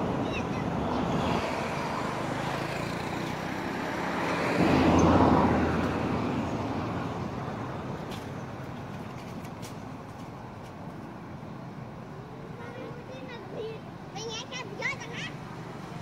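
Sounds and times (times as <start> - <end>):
vehicle passing by: 0.0 - 7.9
road traffic noise: 0.0 - 16.0.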